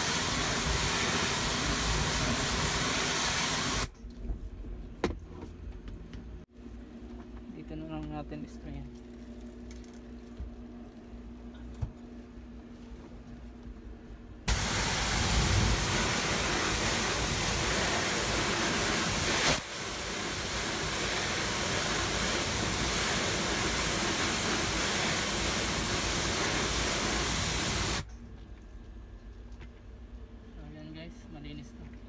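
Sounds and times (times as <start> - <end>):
hissing water spray jet: 0.0 - 3.9, 14.5 - 28.0.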